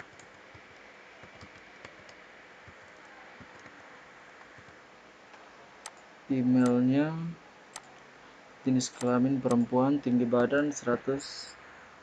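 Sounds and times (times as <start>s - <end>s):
keyboard typing: 0.0s - 3.8s, 4.4s - 4.8s, 7.7s - 8.0s
steady background hiss: 0.0s - 12.0s.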